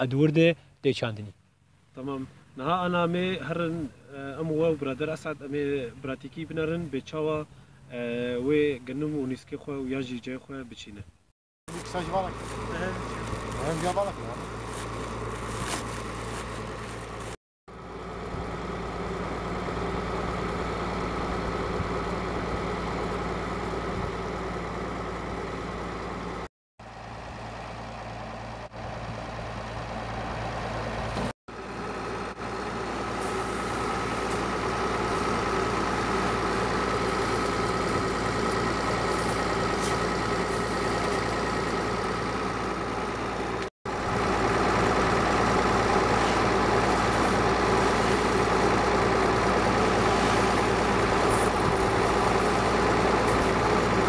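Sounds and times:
tractor engine idling: 11.7s - 54.0s.

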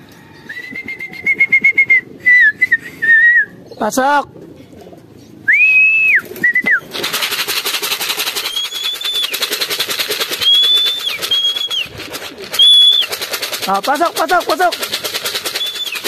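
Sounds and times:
person whistling: 0.5s - 3.5s, 5.5s - 6.8s, 8.3s - 9.6s, 10.4s - 13.2s, 15.4s - 16.0s
fast steady rattle: 6.7s - 16.0s.

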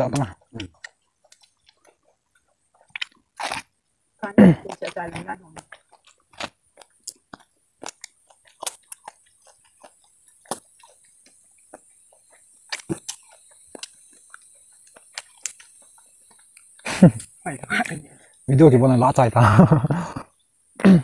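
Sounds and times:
chewing corn crunches: 0.0s - 18.5s
faint high hiss: 16.5s - 21.0s.

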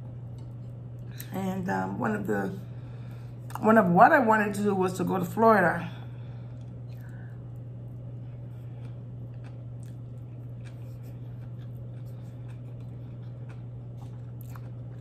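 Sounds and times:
steady low hum: 0.0s - 15.0s
person chewing food: 6.5s - 15.0s.

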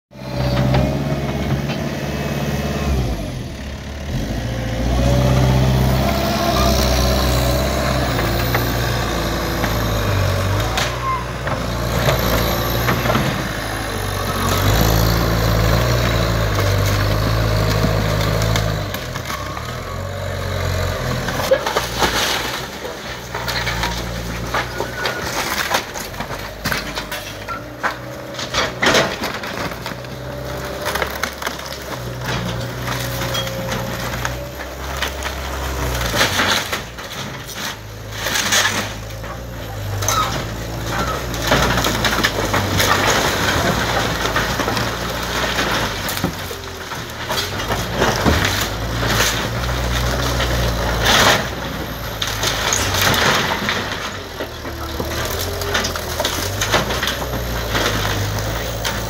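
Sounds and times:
skid steer engine under load: 0.1s - 59.0s
wood crushing and splintering: 0.2s - 59.0s
timber cracking and snapping: 21.1s - 59.0s.

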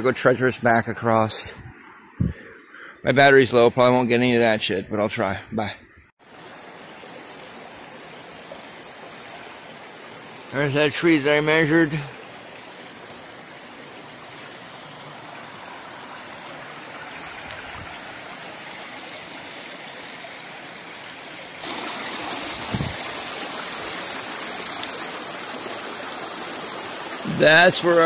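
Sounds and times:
river running over rocks: 6.2s - 28.0s.

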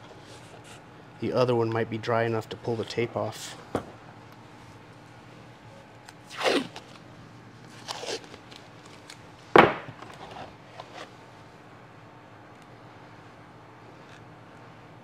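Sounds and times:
masking tape ripping: 6.2s - 7.0s, 7.7s - 9.2s.

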